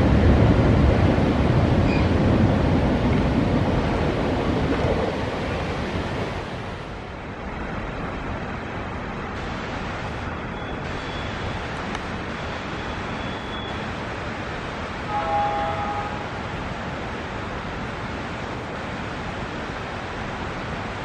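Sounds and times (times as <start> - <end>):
freight train rumbling: 0.0 - 21.0
waterfall rushing: 8.3 - 21.0.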